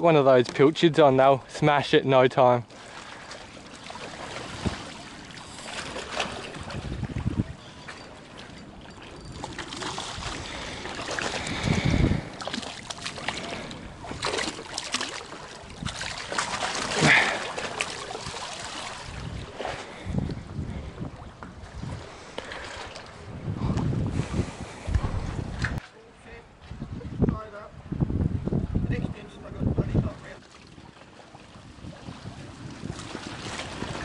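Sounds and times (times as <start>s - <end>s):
water splashes: 0.1s - 26.0s, 30.1s - 34.0s
wind gusting on microphone: 4.2s - 34.0s
fish splashing at surface: 9.5s - 19.3s.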